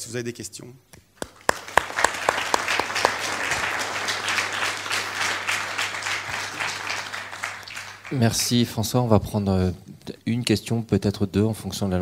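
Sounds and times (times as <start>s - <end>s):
loud sharp claps close by: 1.2s - 8.7s
audience applauding: 1.2s - 8.8s.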